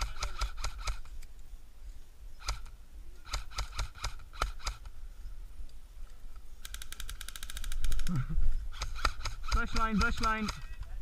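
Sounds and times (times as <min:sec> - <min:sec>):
airsoft gun shots: 0:08.8 - 0:10.7.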